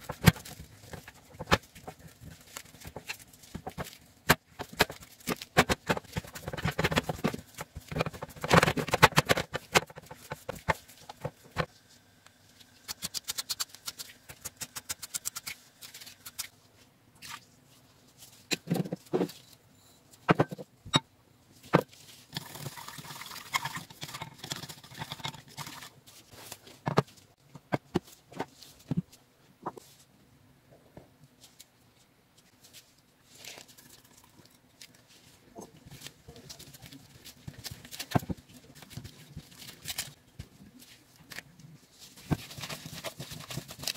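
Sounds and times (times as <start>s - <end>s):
stirring in bowls: 22.2s - 26.0s.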